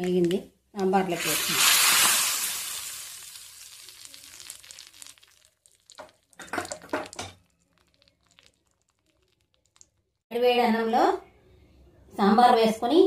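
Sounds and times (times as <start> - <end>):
hot oil sizzling: 0.2 - 9.9.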